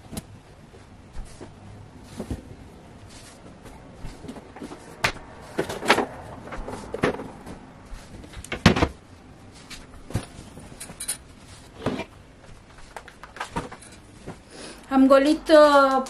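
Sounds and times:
rustling fabric: 0:00.0 - 0:14.7
knocks against wooden shelves: 0:08.3 - 0:09.0.

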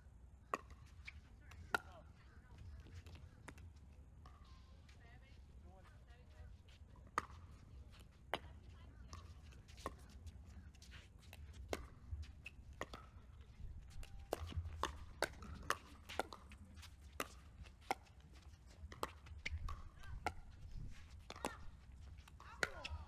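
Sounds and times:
paddles hitting plastic ball: 0:13.9 - 0:23.0.

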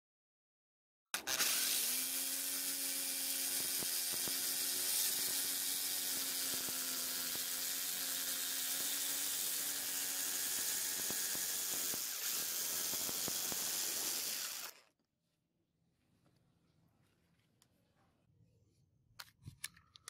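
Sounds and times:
jigsaw blade sawing wood: 0:01.2 - 0:14.9
jigsaw motor hum: 0:01.2 - 0:14.9.

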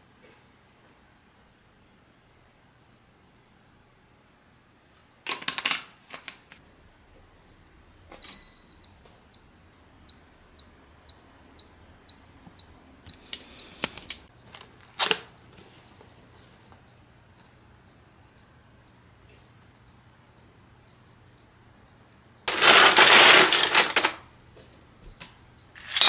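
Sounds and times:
appliance beep: 0:08.2 - 0:09.4
timer ticking: 0:08.2 - 0:13.5, 0:14.3 - 0:22.5
kitchen items knocking: 0:22.5 - 0:24.2.

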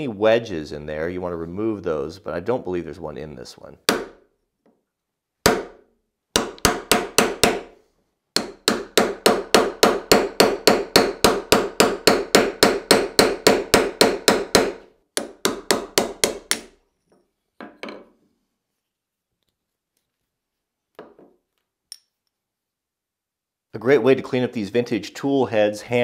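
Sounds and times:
hammer striking steel punch: 0:08.4 - 0:16.7.

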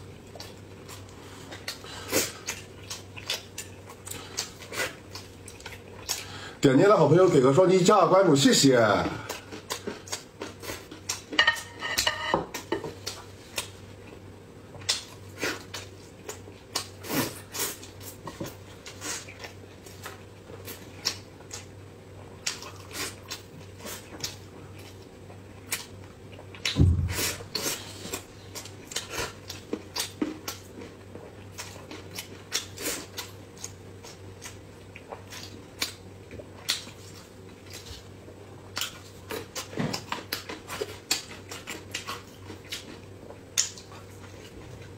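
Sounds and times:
faint steady hum: 0:00.0 - 0:44.9
chewing and lip-smacking: 0:00.2 - 0:06.3, 0:09.2 - 0:11.4, 0:13.0 - 0:44.9
chopsticks clacking: 0:11.4 - 0:12.4
low thump: 0:26.8 - 0:27.4.

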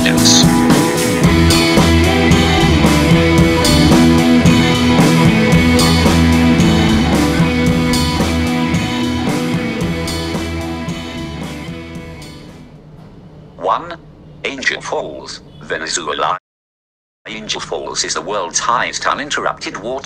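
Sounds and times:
music with steady beat: 0:00.0 - 0:12.6.

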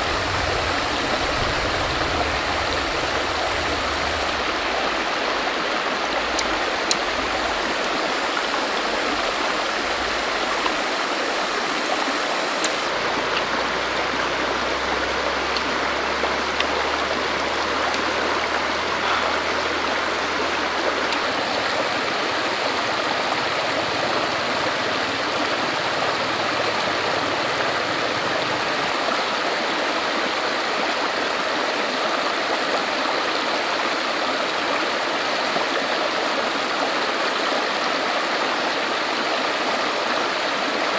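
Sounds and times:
water rushing over rocks: 0:00.0 - 0:40.9
faint clicks: 0:12.5 - 0:13.6.

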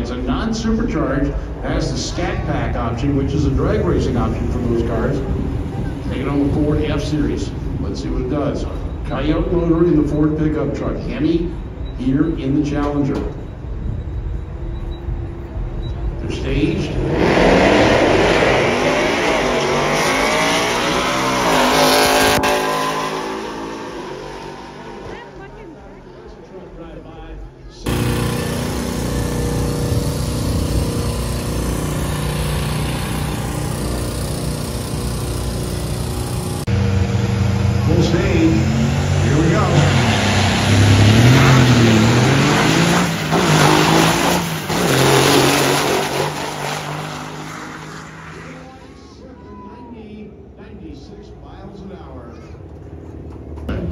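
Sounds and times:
cars accelerating hard: 0:16.3 - 0:26.3, 0:27.8 - 0:49.2.

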